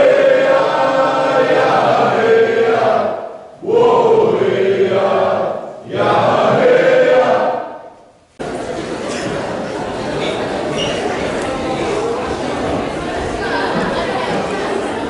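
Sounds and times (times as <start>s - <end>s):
voices chanting in long held notes: 0.0s - 7.9s.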